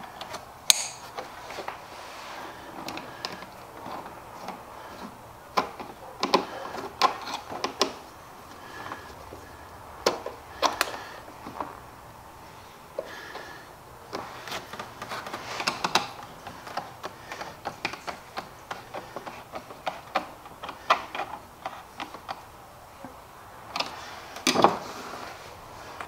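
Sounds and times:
plastic and metal parts clicking: 0:02.9 - 0:08.0, 0:10.0 - 0:11.6, 0:14.1 - 0:22.5.

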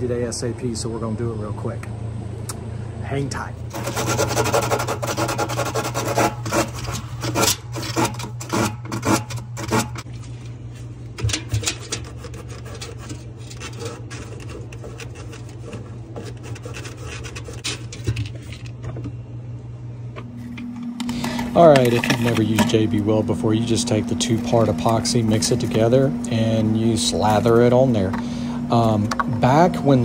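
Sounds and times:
hand rubbing metal tubing: 0:03.7 - 0:10.1, 0:11.2 - 0:18.7.

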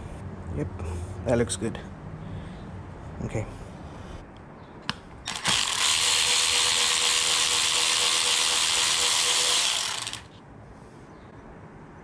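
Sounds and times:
cordless ratchet motor whirring: 0:05.3 - 0:10.4.

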